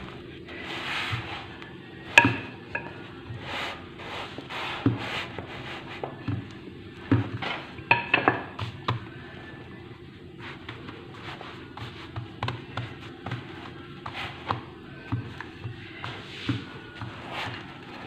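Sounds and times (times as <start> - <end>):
rolling pin rubbing on dough: 0.0 - 18.0
rolling pin knocking on stone counter: 2.1 - 3.0, 7.1 - 9.0.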